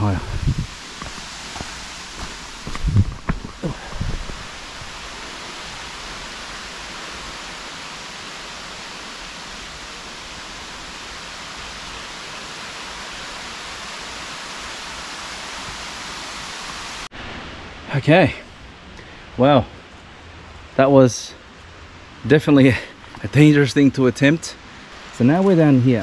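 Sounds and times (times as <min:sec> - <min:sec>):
waterfall rushing: 0:00.0 - 0:18.3.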